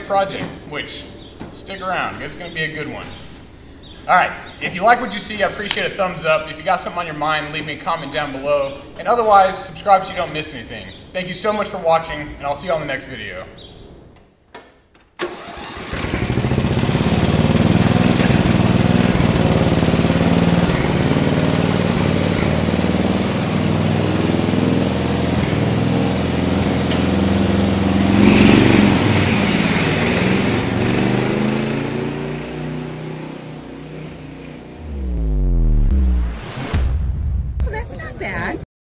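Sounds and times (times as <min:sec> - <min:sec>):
riding mower engine: 0:15.2 - 0:35.0
whooshing sound effect: 0:34.8 - 0:38.4.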